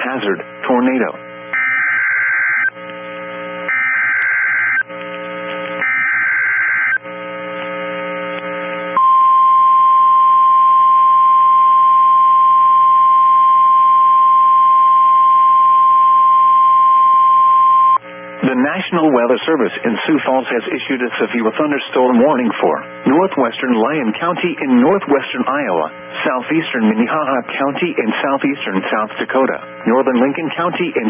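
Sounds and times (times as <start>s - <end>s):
single-pitch warning alarm tone: 1.5s - 2.7s, 3.7s - 4.9s, 5.8s - 7.1s, 9.0s - 18.0s.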